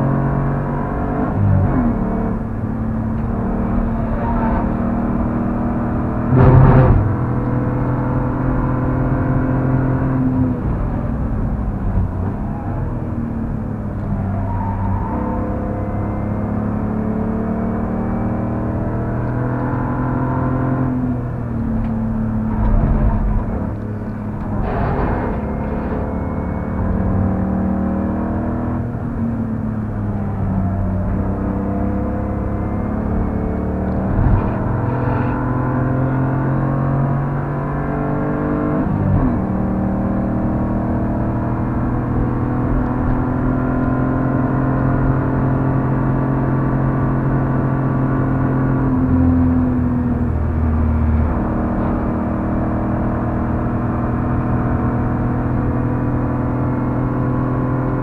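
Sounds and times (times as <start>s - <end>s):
car engine accelerating: 0.0s - 58.0s
tyre and road noise: 1.3s - 9.4s, 21.0s - 37.3s.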